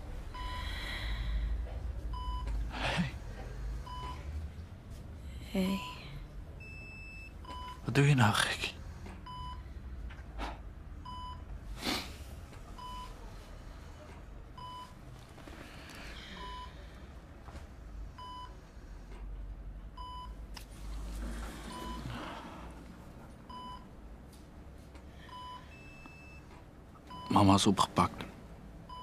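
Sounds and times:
faint room hum: 0.0 - 29.0
patient monitor beeping: 0.2 - 4.4, 5.4 - 9.7, 11.0 - 11.6, 12.5 - 17.0, 18.1 - 18.6, 19.9 - 20.5, 21.5 - 22.4, 23.2 - 24.0, 25.2 - 29.0.

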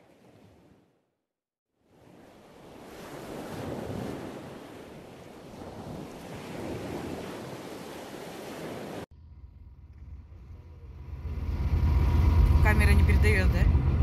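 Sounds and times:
waves washing: 0.0 - 1.0, 1.8 - 9.1
low rumble: 9.1 - 14.0.

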